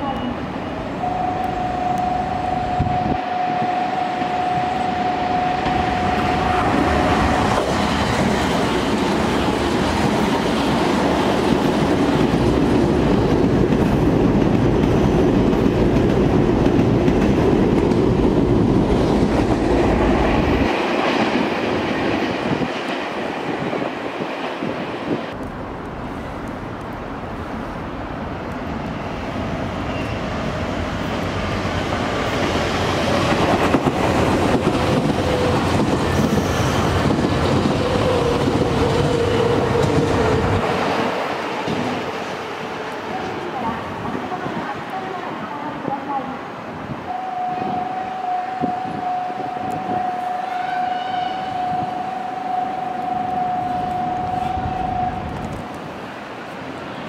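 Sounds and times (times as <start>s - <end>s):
steady high tone: 0.0s - 8.3s
train wheels rumbling and clattering: 5.6s - 44.8s.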